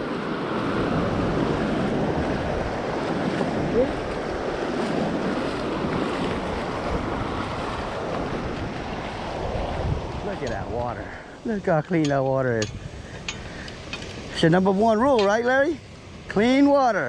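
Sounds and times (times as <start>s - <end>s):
surf washing up beach: 0.0s - 17.0s
wind buffeting microphone: 0.0s - 17.0s.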